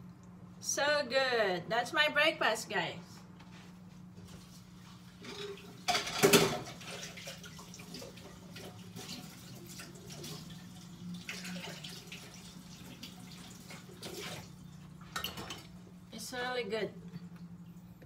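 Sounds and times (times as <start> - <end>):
dishes clinking: 5.2 - 6.8, 15.1 - 15.7
dishes clattering: 5.2 - 7.1, 15.1 - 15.7.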